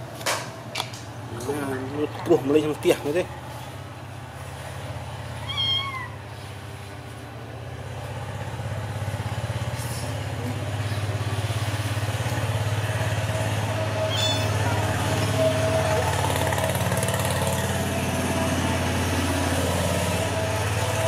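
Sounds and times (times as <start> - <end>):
low engine hum: 0.0 - 21.0
kitten meowing: 5.4 - 6.2, 14.1 - 14.6.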